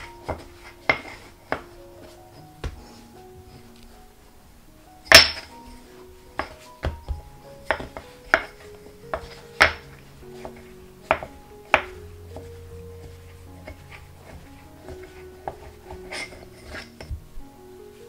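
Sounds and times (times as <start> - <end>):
rolling pin knocking on wooden board: 0.0 - 1.7, 6.4 - 17.2
soft background music: 0.0 - 18.0.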